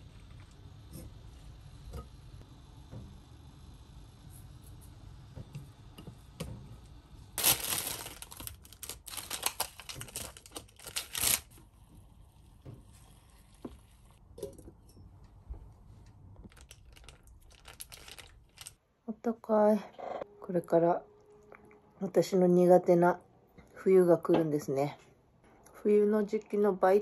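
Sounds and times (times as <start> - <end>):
plastic packaging crinkling: 7.4 - 11.6, 16.4 - 18.8.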